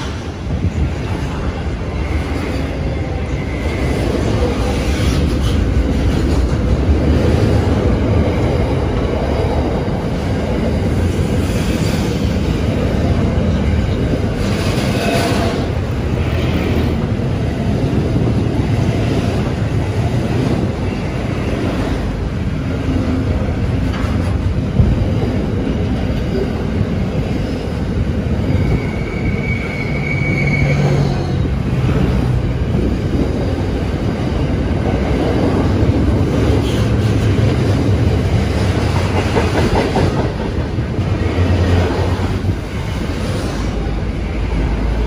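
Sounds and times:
train wheels rumbling on rails: 0.0 - 45.0
high wheel squeal: 28.4 - 31.6.

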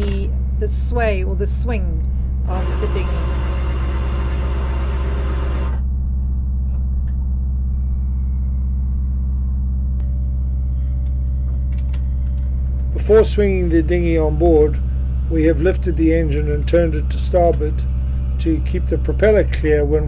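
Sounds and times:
diesel engine humming: 0.0 - 20.0
high hiss: 13.0 - 19.7.

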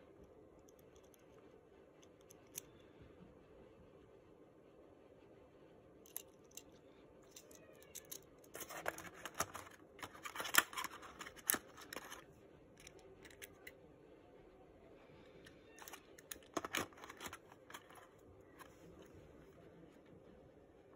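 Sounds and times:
plastic clicks and scrapes: 7.4 - 13.7, 15.4 - 19.1.

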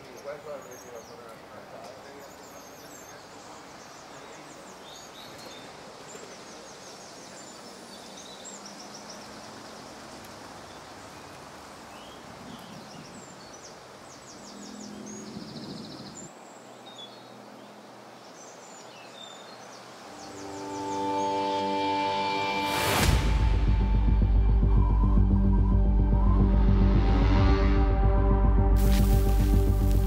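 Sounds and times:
small birds chirping: 0.0 - 21.8, 28.8 - 30.0
background noise: 0.0 - 30.0
low hum: 22.8 - 30.0.

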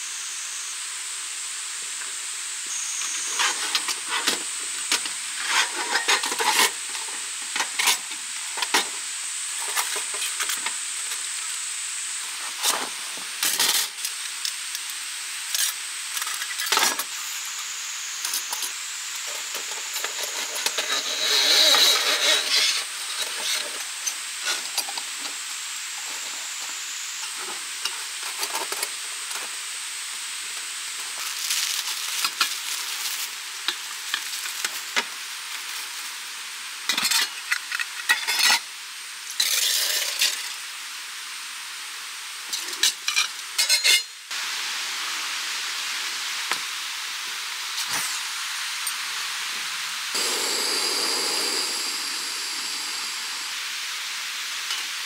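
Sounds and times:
steady hiss: 0.0 - 55.0.

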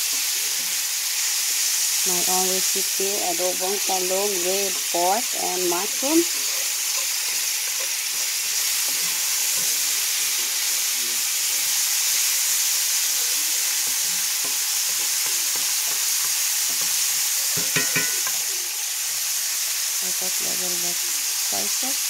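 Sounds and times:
meat sizzling in a skillet: 0.0 - 22.0
wooden spatula scraping a pan: 3.8 - 18.5.

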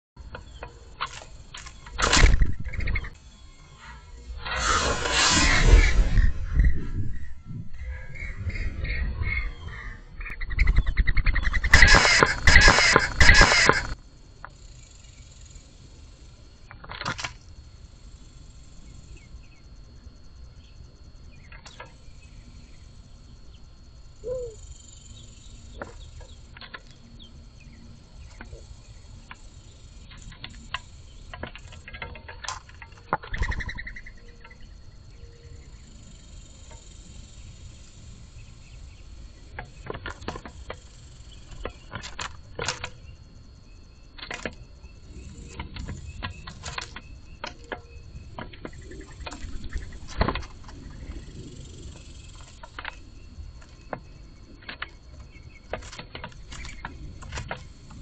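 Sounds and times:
wings flapping: 10.5 - 14.0.

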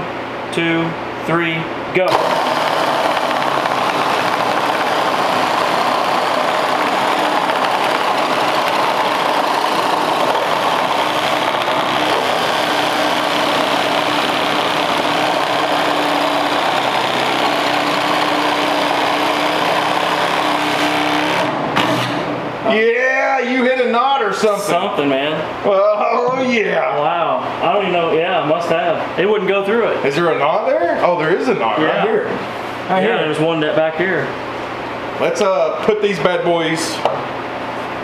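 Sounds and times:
reciprocating saws cutting wood: 2.1 - 22.3.

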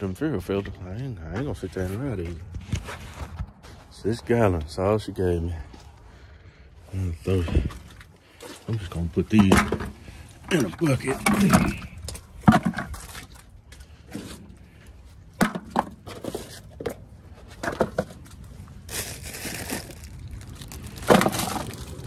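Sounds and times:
plastic bucket being moved: 9.3 - 14.8, 15.4 - 18.4, 21.0 - 22.0.

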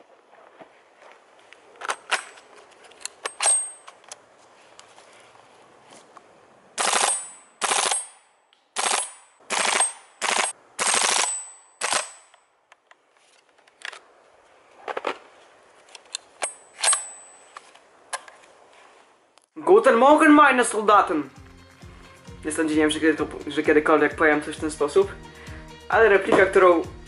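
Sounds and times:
rifle handling clicks and clacks: 1.8 - 4.2, 11.8 - 14.1, 15.8 - 18.5
airsoft rifle full-auto bursts: 6.8 - 8.1, 8.8 - 12.2.

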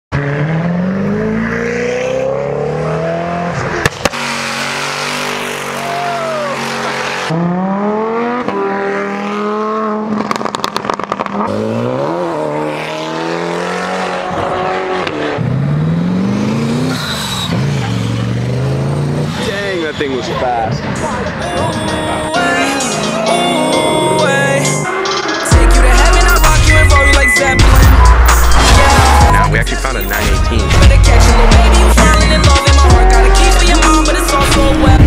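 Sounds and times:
cars accelerating hard: 0.1 - 35.0
sharp exhaust pops: 10.2 - 11.5.

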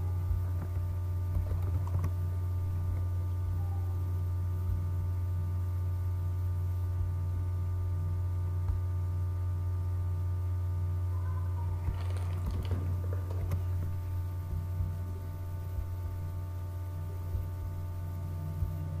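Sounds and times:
low electrical hum: 0.0 - 19.0
faint steady higher tones: 10.9 - 19.0.

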